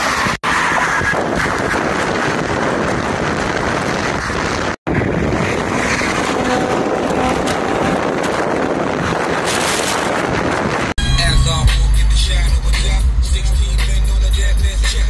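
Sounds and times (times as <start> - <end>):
wind rushing over microphone: 0.0 - 11.0
road noise: 0.0 - 15.0
hip-hop music with heavy bass: 11.0 - 15.0.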